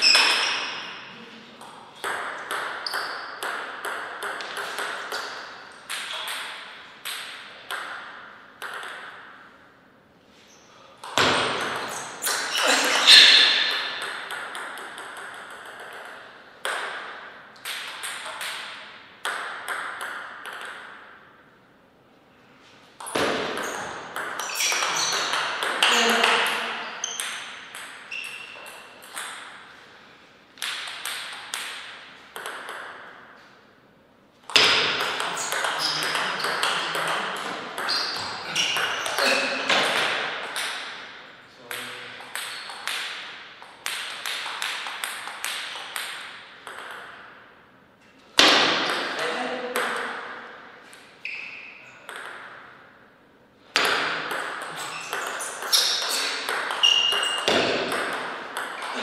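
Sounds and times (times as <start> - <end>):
ping pong ball knocks: 8.6 - 9.2, 30.6 - 33.0, 43.8 - 47.1, 52.1 - 52.6, 53.8 - 58.9.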